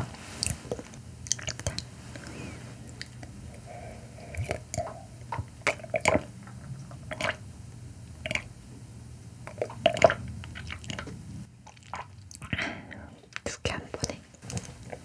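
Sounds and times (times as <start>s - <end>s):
sipping and swallowing: 0.4s - 7.4s, 9.5s - 13.4s.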